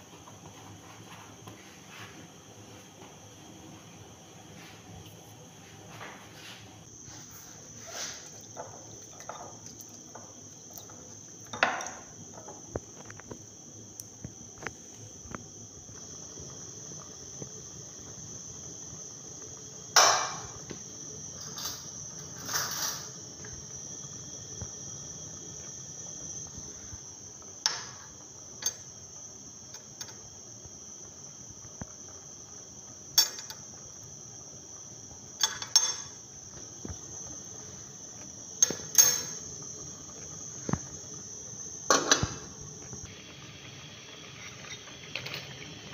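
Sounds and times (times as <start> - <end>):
crickets trilling: 0.0 - 45.9
metal pot and spoon clattering: 35.4 - 36.1.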